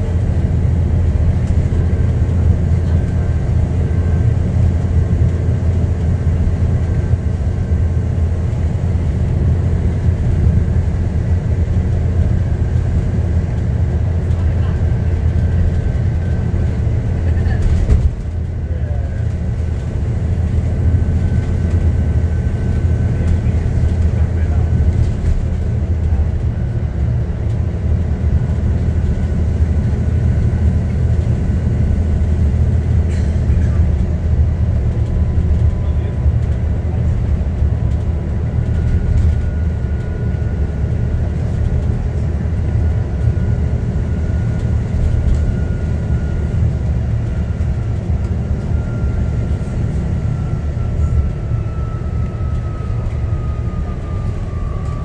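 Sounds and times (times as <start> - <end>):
bus engine and road drone: 0.0 - 55.0
faint whine falling in pitch: 50.2 - 55.0.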